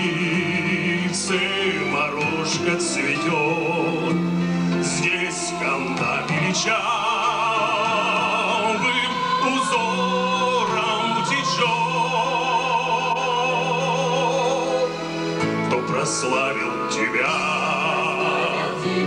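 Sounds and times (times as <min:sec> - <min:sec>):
female choir singing: 0:05.5 - 0:13.1, 0:17.2 - 0:19.0.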